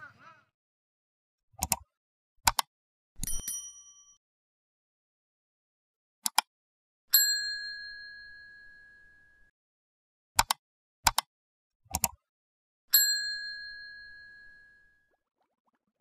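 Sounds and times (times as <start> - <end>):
mouse clicks: 1.6 - 3.4, 6.2 - 6.5, 10.4 - 11.3, 11.9 - 12.2
bright bell ding: 7.1 - 9.5, 12.9 - 15.0.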